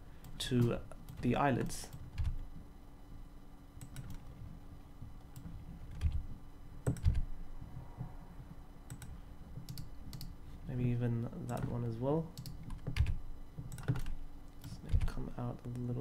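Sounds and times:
faint steady hum: 0.0s - 16.0s
keyboard keys clicking: 5.2s - 6.2s, 6.8s - 7.3s, 8.9s - 10.3s, 12.4s - 15.9s.

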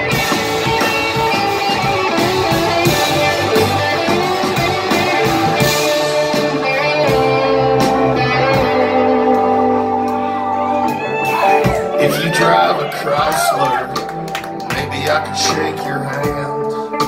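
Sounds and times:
drum and cymbal hits: 0.0s - 8.9s
live rock band playing: 0.0s - 17.0s.

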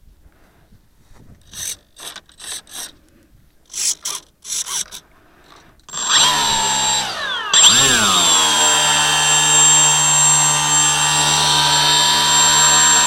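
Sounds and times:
electric motor and propeller whine: 5.9s - 13.0s
servo buzzes: 5.9s - 13.0s.

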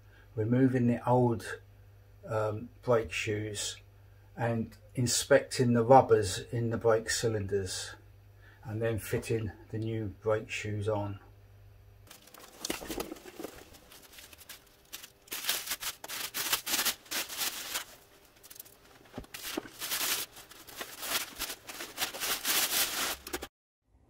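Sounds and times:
cloth rustling: 12.1s - 23.5s.

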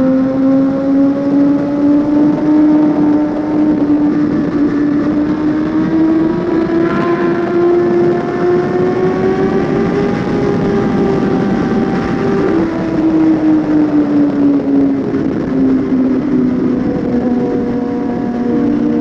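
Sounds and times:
motorcycle engine running: 0.0s - 19.0s.

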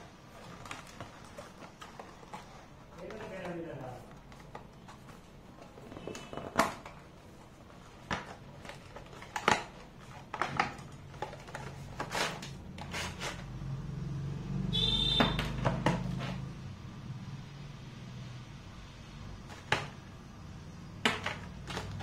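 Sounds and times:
packaging clicks and taps: 0.3s - 13.5s, 21.0s - 22.0s
plastic tray rubbing on cardboard: 11.8s - 13.5s.

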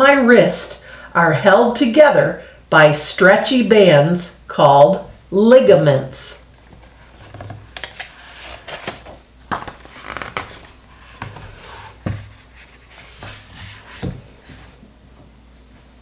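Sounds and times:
book pages rustling: 6.6s - 14.8s.

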